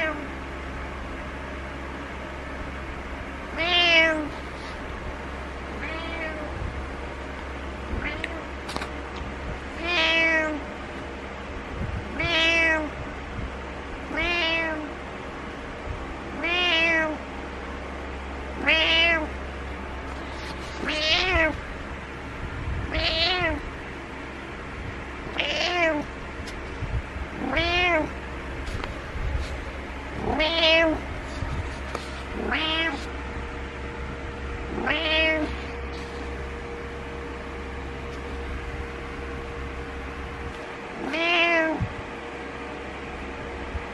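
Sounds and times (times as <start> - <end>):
cat meowing: 0.0 - 0.3, 3.5 - 4.3, 5.8 - 6.6, 7.9 - 8.5, 9.8 - 10.6, 12.1 - 12.9, 14.1 - 14.9, 16.4 - 17.2, 18.6 - 19.3, 20.8 - 21.6, 22.9 - 23.6, 25.3 - 26.1, 27.4 - 28.2, 30.2 - 33.1, 34.7 - 35.8, 41.0 - 41.9
steady low hum: 0.0 - 43.9.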